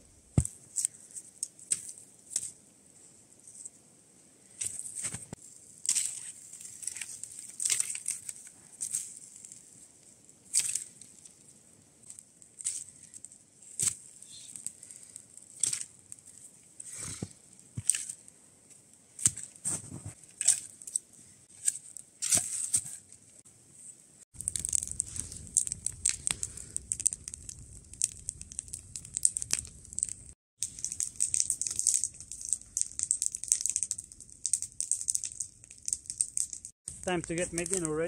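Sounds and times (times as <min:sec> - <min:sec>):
campfire crackling and popping: 0:12.0 - 0:18.3, 0:24.3 - 0:38.0.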